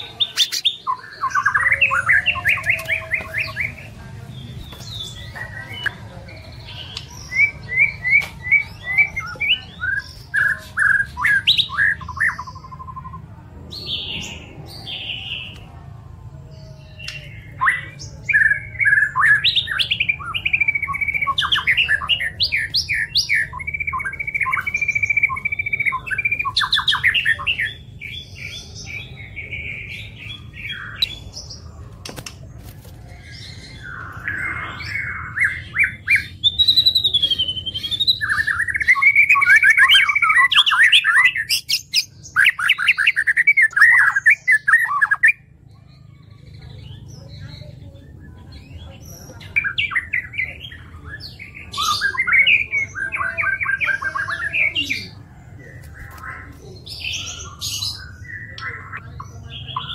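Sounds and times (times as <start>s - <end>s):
songbird whistling and chirping: 4.8s - 13.2s, 16.8s - 31.7s, 33.1s - 55.2s.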